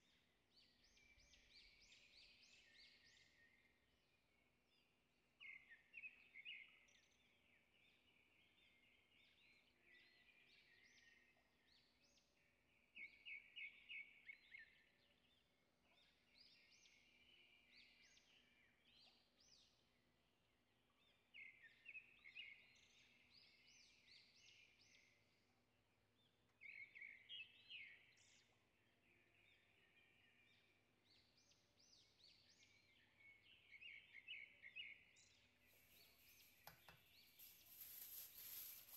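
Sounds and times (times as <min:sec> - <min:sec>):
quiet bird chirping: 0:00.0 - 0:38.9
songbird singing chirpy phrases: 0:00.0 - 0:38.9.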